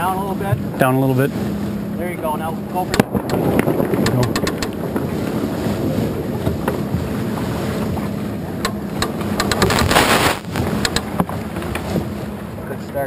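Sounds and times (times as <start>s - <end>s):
wind buffeting microphone: 0.0s - 12.9s
water rushing along hull: 0.0s - 13.0s
sharp clicks: 4.0s - 4.8s, 8.6s - 10.0s, 10.6s - 11.1s
loud gush of noise: 9.6s - 10.6s.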